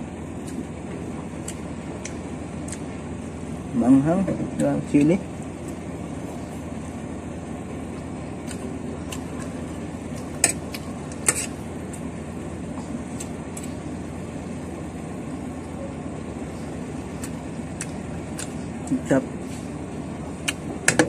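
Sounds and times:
low background hum: 0:00.0 - 0:21.0
metal spoon scraping a plate: 0:10.4 - 0:11.6.

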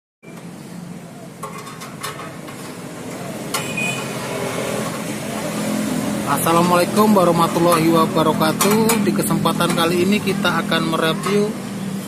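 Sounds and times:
sheet metal clinks and knocks: 0:01.4 - 0:02.6.

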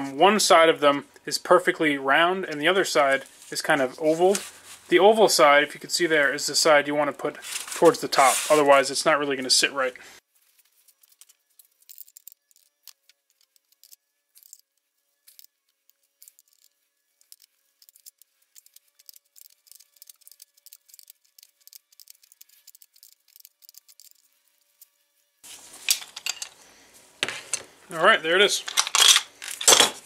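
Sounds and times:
wrenches clicking on metal: 0:28.6 - 0:30.0.

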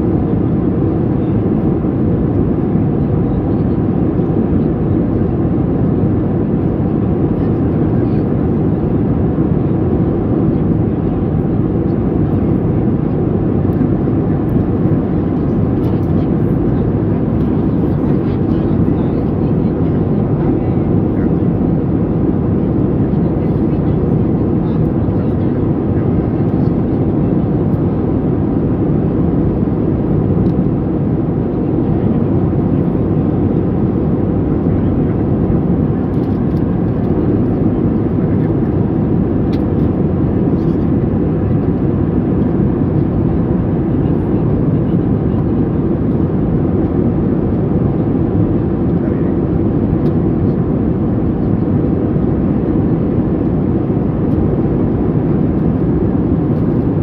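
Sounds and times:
airplane cabin rumble: 0:00.0 - 0:57.0.

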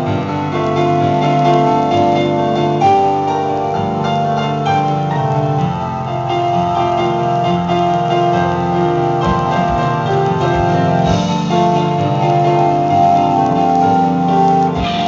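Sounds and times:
keyboard chords: 0:00.0 - 0:15.0
live band playing: 0:10.9 - 0:11.8, 0:14.0 - 0:15.0.

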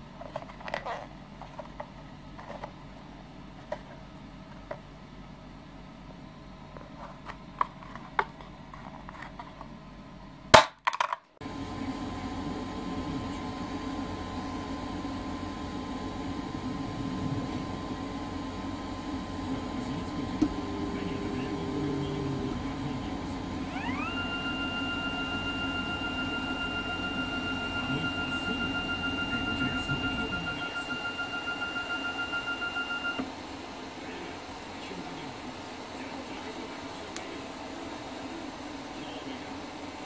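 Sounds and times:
faint steady whine: 0:11.4 - 0:40.0
printer mechanical hum: 0:11.4 - 0:40.0.

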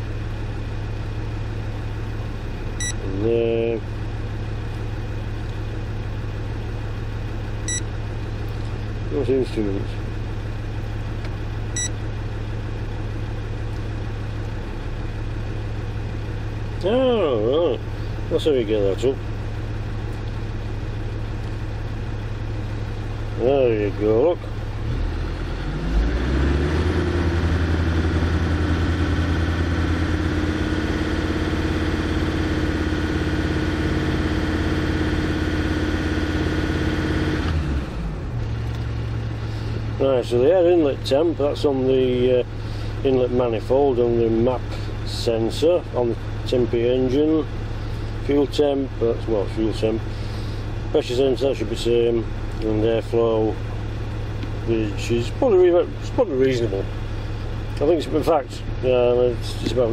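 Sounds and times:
diesel engine idling: 0:00.0 - 0:59.9
short electronic beep: 0:02.8 - 0:03.0, 0:07.7 - 0:07.9, 0:11.7 - 0:12.0.

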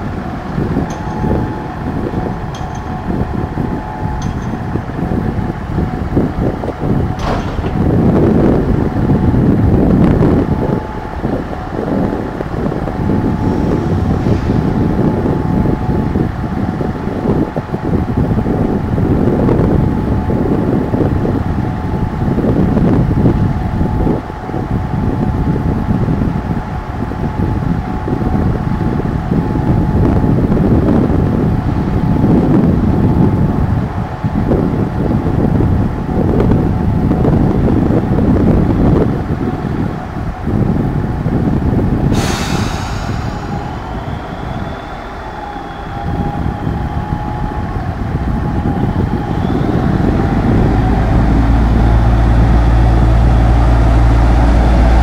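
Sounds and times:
diesel engine idling: 0:00.0 - 0:55.0
faint steady whine: 0:42.8 - 0:55.0.

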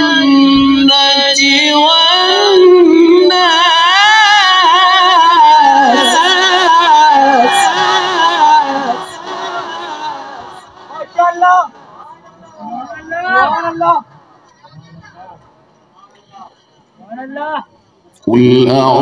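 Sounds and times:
man reciting melismatic chant: 0:00.0 - 0:11.6, 0:18.2 - 0:19.0.

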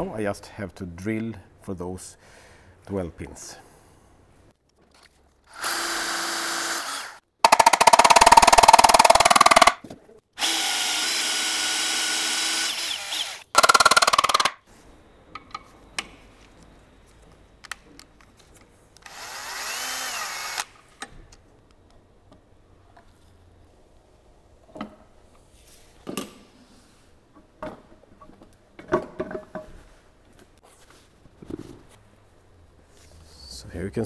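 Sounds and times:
cordless drill boring: 0:05.5 - 0:09.8, 0:10.4 - 0:14.5, 0:19.0 - 0:20.7.

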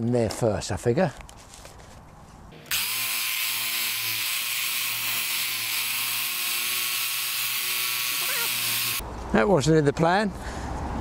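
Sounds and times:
electric saw cutting branch: 0:02.6 - 0:09.0.

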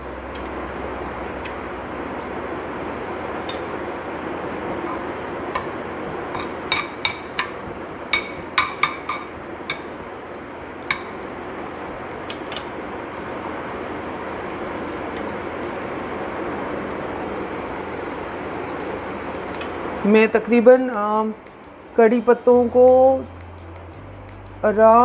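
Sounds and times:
spoon knocking against pan: 0:06.4 - 0:07.6, 0:08.2 - 0:09.9.

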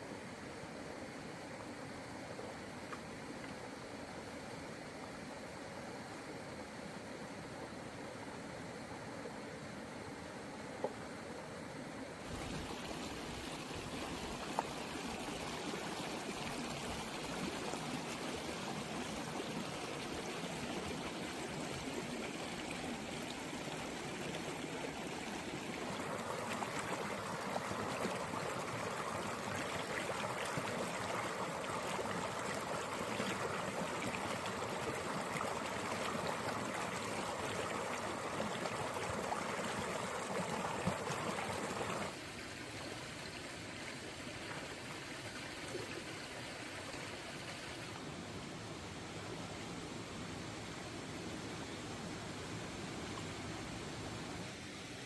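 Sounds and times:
stream running over rocks: 0:00.0 - 0:55.0
water splashing over cascade: 0:12.2 - 0:42.4.

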